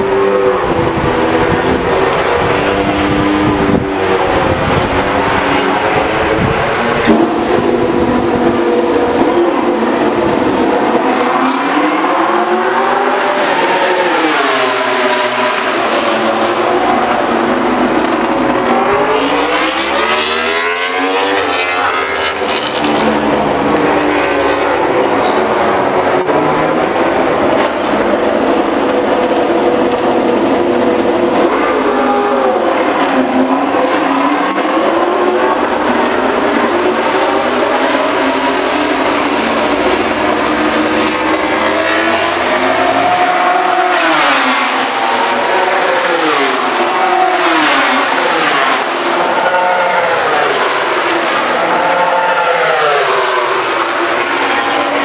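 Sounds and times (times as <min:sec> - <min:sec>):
racing motorcycle engines screaming: 0:26.3 - 0:55.0.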